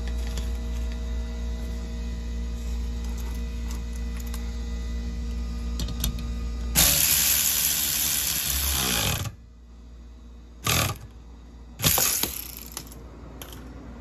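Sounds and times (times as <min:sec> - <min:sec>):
power tool turning a socket: 0:11.8 - 0:13.0.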